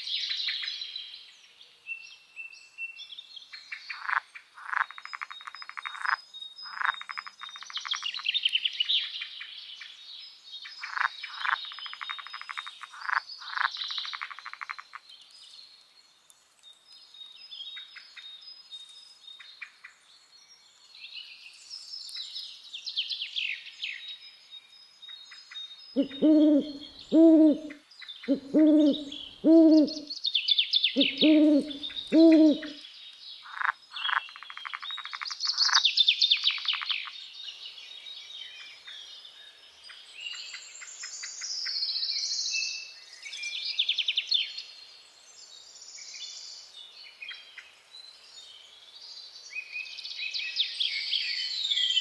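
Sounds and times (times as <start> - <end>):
songbirds chirping and trilling: 0.0 - 52.0
owl hooting: 26.0 - 30.1, 31.0 - 32.8.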